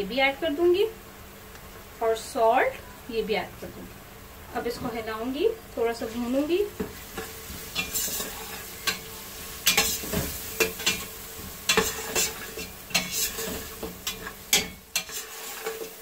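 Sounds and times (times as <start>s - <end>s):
onions and spices sizzling in oil: 0.0s - 16.0s
metal spatula scraping pot: 7.0s - 16.0s.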